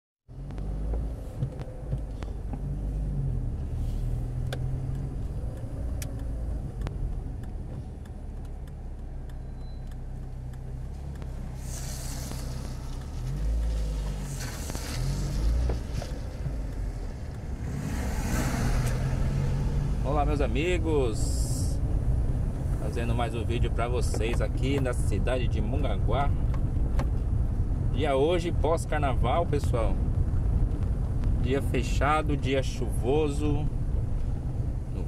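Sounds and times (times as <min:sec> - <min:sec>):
car engine running: 0:00.3 - 0:35.0
road rumble: 0:00.3 - 0:35.0
tyre hiss on wet road: 0:11.4 - 0:16.5, 0:17.6 - 0:20.0.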